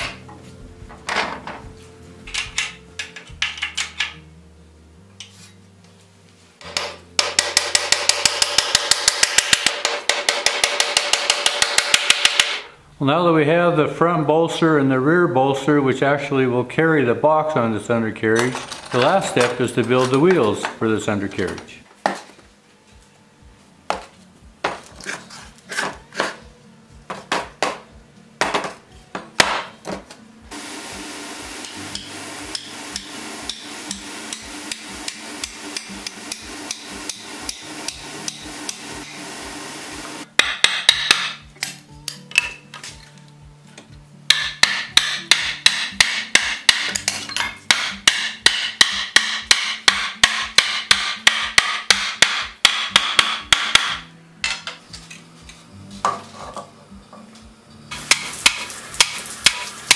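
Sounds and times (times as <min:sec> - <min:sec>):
background music with bass: 0:00.0 - 0:07.7, 0:22.4 - 0:59.9
hammer striking wooden wheel: 0:06.6 - 0:12.7, 0:31.6 - 0:39.2, 0:40.4 - 0:41.4, 0:44.3 - 0:54.8, 0:58.1 - 0:59.9.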